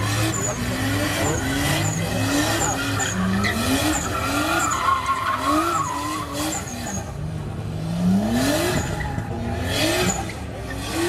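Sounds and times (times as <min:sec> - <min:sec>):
tyres squealing: 0:00.0 - 0:07.2
car engine revving: 0:00.0 - 0:11.0.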